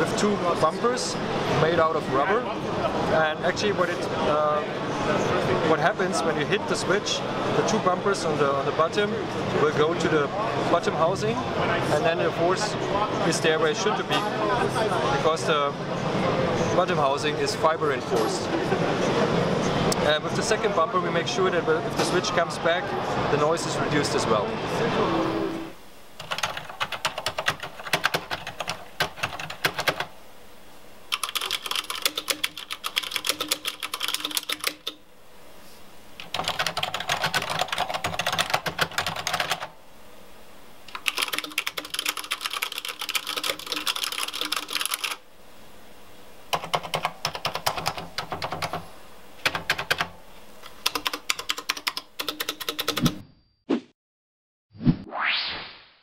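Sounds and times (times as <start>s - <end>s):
rapid mechanical keyboard typing: 26.2s - 30.1s, 31.1s - 35.0s, 36.2s - 39.7s, 40.9s - 45.2s, 46.5s - 48.8s, 49.4s - 50.1s, 50.7s - 53.2s.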